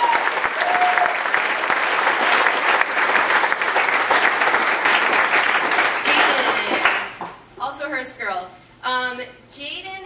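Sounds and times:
crowd applauding: 0:00.0 - 0:07.4.

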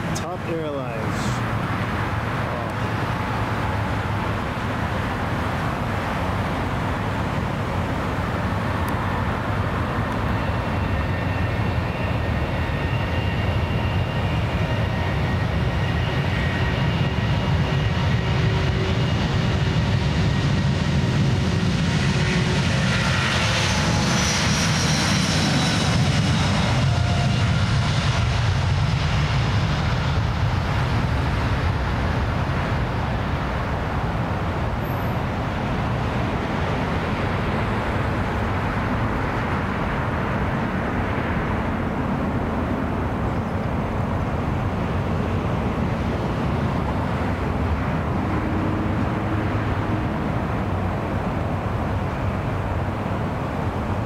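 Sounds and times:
high fan whine: 0:00.0 - 0:19.9, 0:25.5 - 0:54.0
jet engine roar: 0:00.0 - 0:54.0.

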